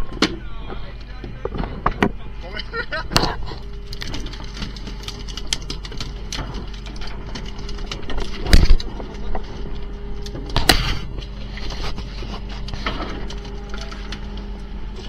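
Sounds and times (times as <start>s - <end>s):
boat engine running: 0.0s - 15.0s
gear clattering on deck: 3.2s - 14.4s.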